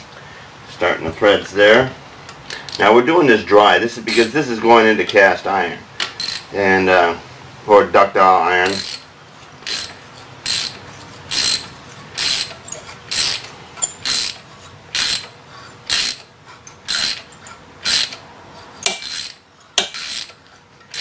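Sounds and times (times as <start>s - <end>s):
ratchet wrench clicking: 4.1s - 4.3s, 6.2s - 6.5s, 8.6s - 18.2s, 18.8s - 21.0s.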